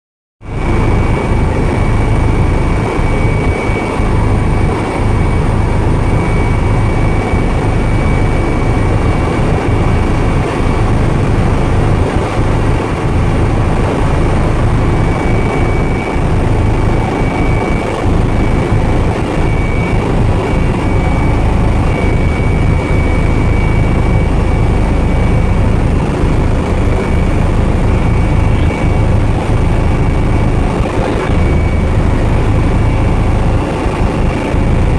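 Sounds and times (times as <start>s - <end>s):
helicopter rotor and engine drone: 0.4s - 34.9s
high whine: 0.4s - 34.9s.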